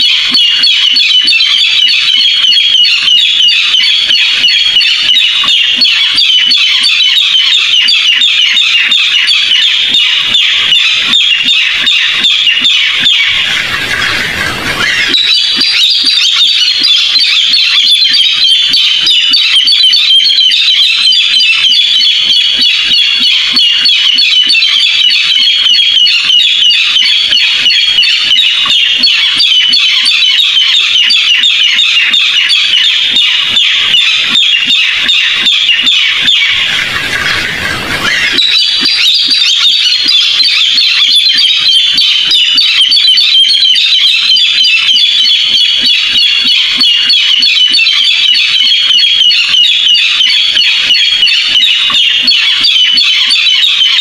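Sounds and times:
bird calling harsh high notes: 0.0s - 54.0s.

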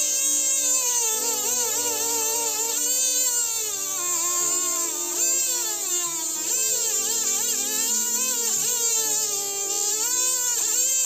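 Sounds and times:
mini grinder cutting wood: 0.0s - 11.0s.

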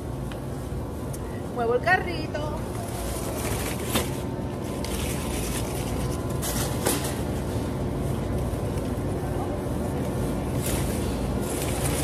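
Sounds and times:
plastic rustling: 2.7s - 7.6s, 10.5s - 12.0s.

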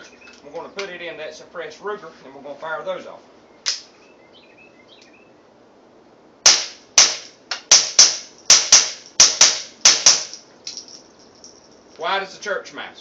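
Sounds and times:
suppressed pistol shots: 6.4s - 10.4s.

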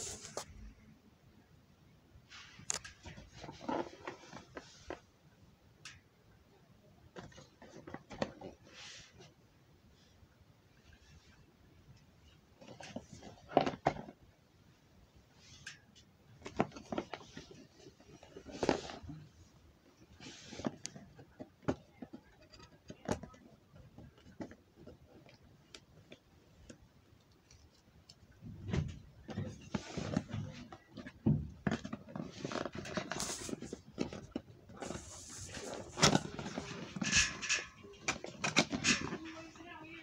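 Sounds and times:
cardboard rustling: 0.0s - 0.5s, 28.6s - 40.0s.

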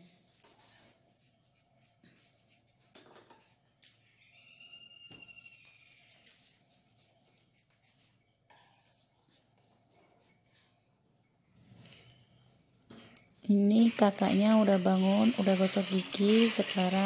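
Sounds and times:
brief high squeak: 4.1s - 6.2s.

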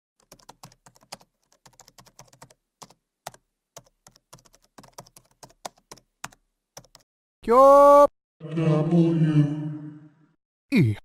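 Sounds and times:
keyboard typing: 0.2s - 7.1s.

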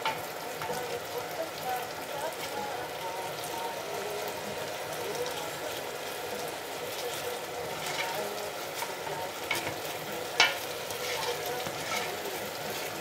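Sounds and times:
sauce sizzling and bubbling: 0.0s - 13.0s
spoon clicking on pan: 10.4s - 10.7s.

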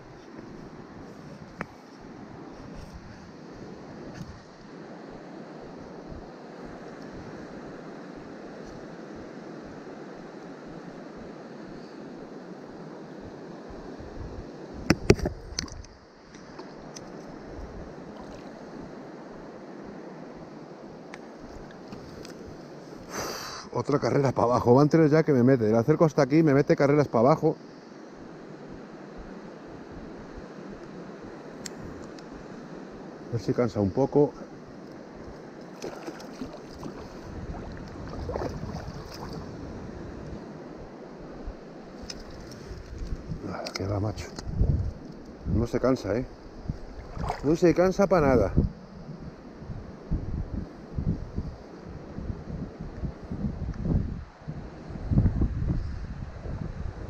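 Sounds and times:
wind rumble on microphone: 0.0s - 20.6s, 28.4s - 57.0s
river water rushing: 35.4s - 41.2s, 46.8s - 47.8s
fish thrashing and splashing: 35.7s - 39.5s.

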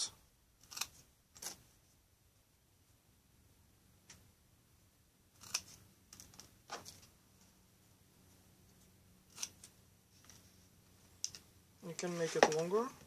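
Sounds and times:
metal snips cutting wooden stick: 5.4s - 6.4s.

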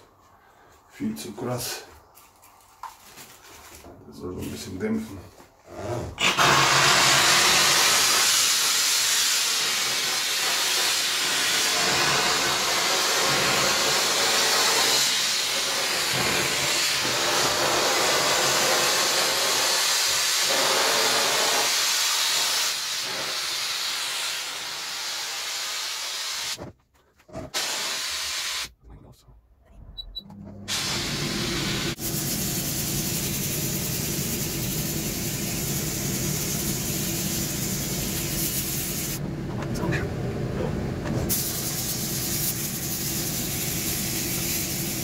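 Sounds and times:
steam cleaner hissing: 6.2s - 26.6s, 27.5s - 28.7s, 30.7s - 39.2s, 41.3s - 45.0s.

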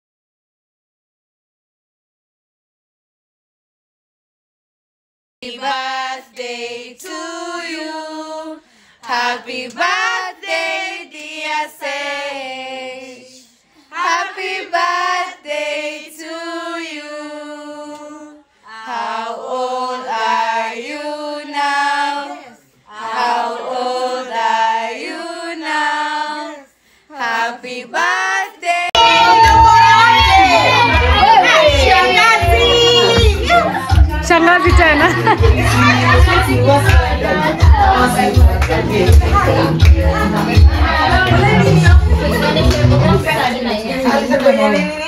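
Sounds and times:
group singing unaccompanied: 5.4s - 45.0s.

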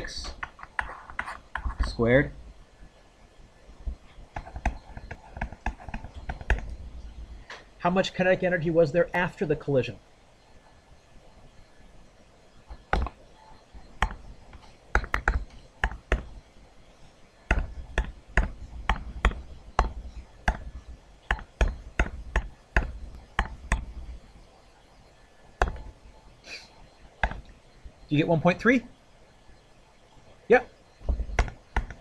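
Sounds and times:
stylus tapping on tablet screen: 0.2s - 2.0s, 3.9s - 7.7s, 12.6s - 16.5s, 17.4s - 24.5s, 25.1s - 26.1s, 27.1s - 28.0s, 31.0s - 32.0s.

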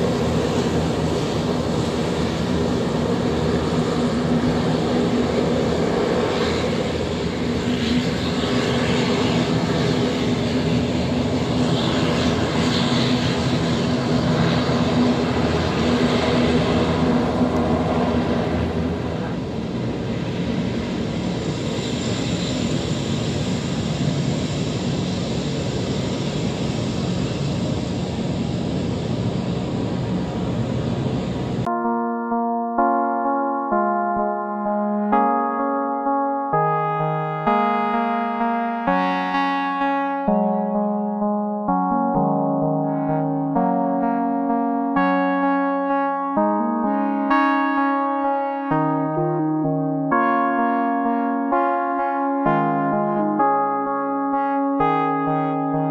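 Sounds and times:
turboprop engines running: 0.0s - 55.9s.

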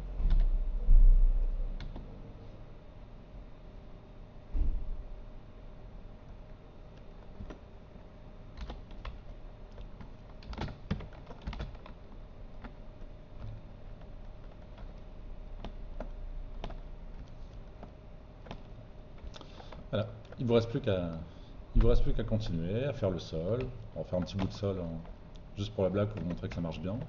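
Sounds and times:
faint steady hum: 0.0s - 27.0s
keyboard keys clicking: 1.8s - 2.1s, 6.2s - 7.6s, 8.5s - 21.2s, 23.3s - 27.0s.

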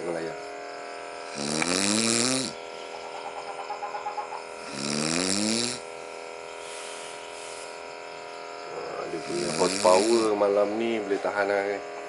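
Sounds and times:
man snoring: 1.2s - 2.6s, 4.6s - 6.0s, 8.8s - 10.5s
faint breath flutter: 6.5s - 7.8s.

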